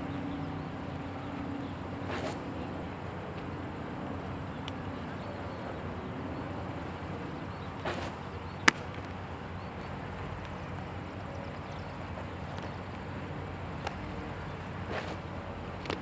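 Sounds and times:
outdoor background noise: 0.0 - 16.0
baseball popping into leather mitt: 14.9 - 15.2.

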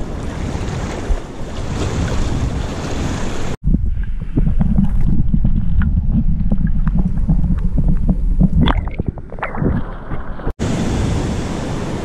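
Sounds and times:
wind: 0.0 - 12.0
underwater water rumble: 1.6 - 10.6
underwater clicks and pops: 4.0 - 10.5.

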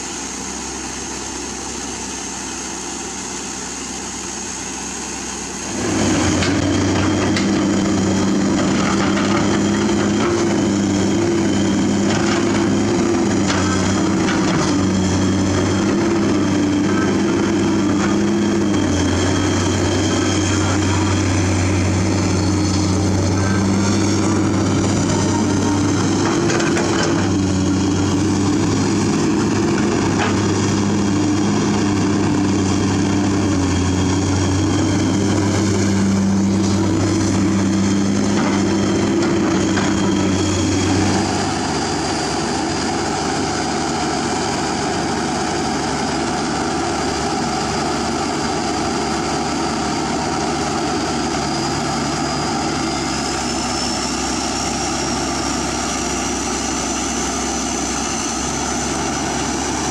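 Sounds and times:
excavator diesel engine: 0.0 - 59.9.

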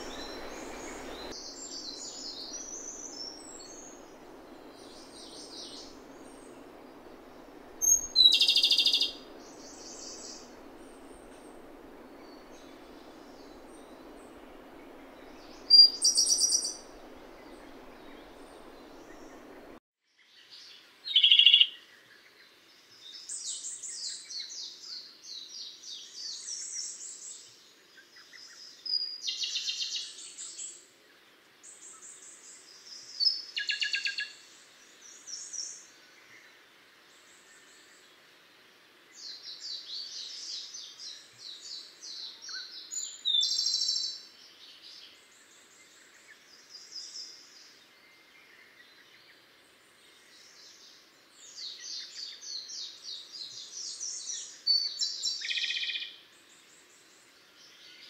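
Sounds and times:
bird singing trills: 0.0 - 19.8
low steady hiss: 0.0 - 58.0.

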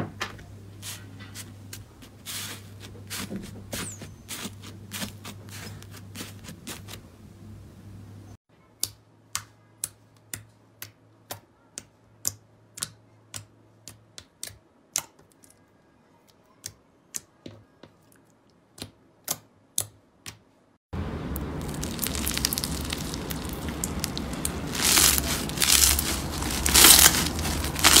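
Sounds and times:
slime crackling when pressed: 21.6 - 28.0.

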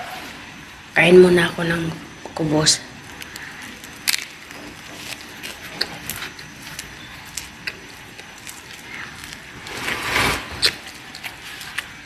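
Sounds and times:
person chewing bread: 3.0 - 12.0.

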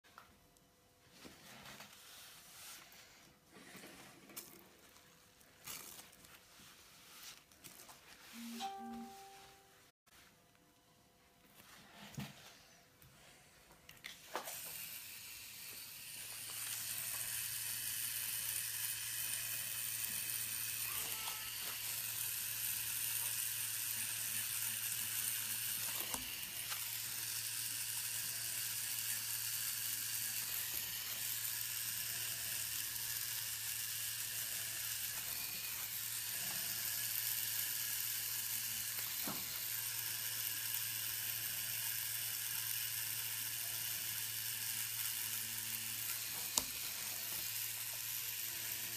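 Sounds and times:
tattoo machine buzzing: 14.2 - 48.9.

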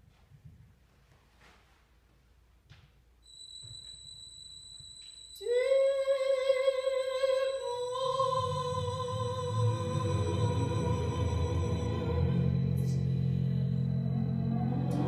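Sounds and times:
low electronic rumble: 8.1 - 15.0.

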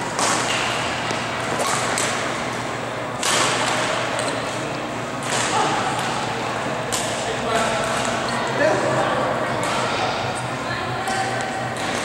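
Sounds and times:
racket hitting shuttlecock: 0.2 - 2.2, 3.2 - 4.5.

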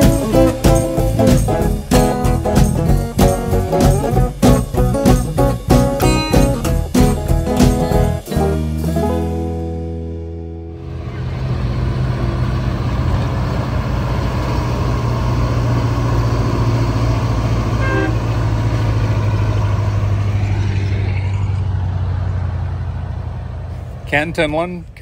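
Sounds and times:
diesel truck engine droning: 0.0 - 25.0
truck horn toot: 17.6 - 18.7.

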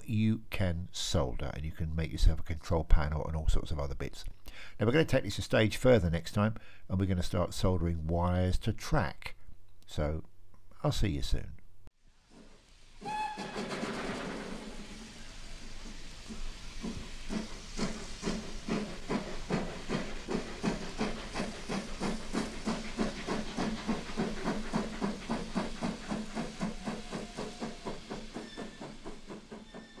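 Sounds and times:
steam hissing: 12.0 - 30.0
steam locomotive chuffing: 12.2 - 30.0.

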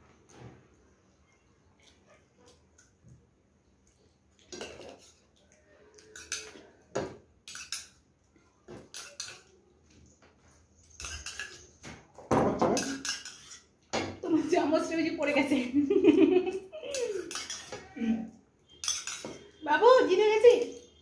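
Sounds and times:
metal spoon scraping a bowl: 6.0 - 6.6, 7.4 - 8.0, 8.9 - 9.5, 10.8 - 11.8, 12.8 - 13.7, 16.9 - 18.0, 18.7 - 19.6
tableware knocking: 12.3 - 13.2.

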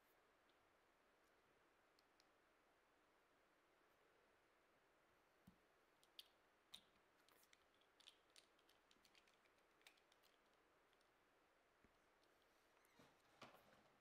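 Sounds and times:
faint small clicks: 1.9 - 2.4, 5.4 - 11.2.

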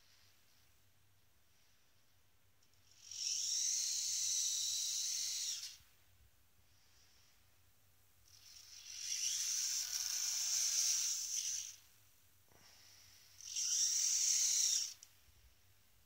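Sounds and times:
servos whining: 2.7 - 5.8, 8.2 - 11.9, 12.5 - 15.2.

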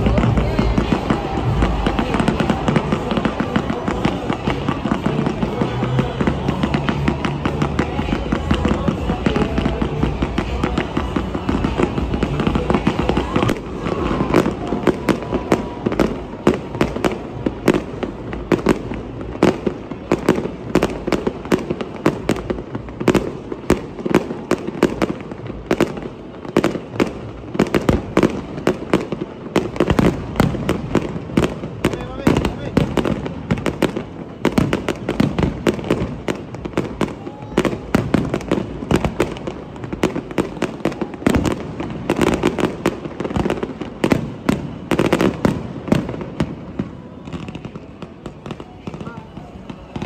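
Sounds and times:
fireworks crackling: 0.0 - 50.0.

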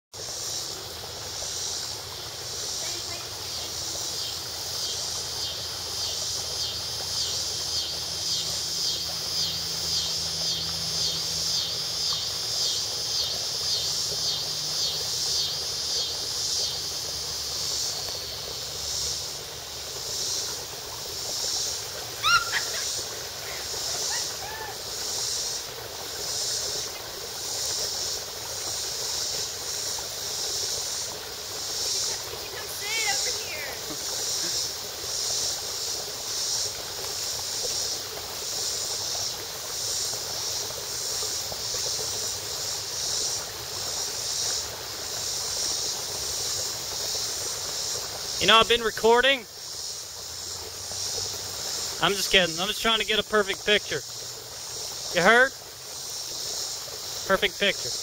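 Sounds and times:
insects singing pulsing drone: 0.2 - 58.0
bird whistled chirps: 22.2 - 22.7.

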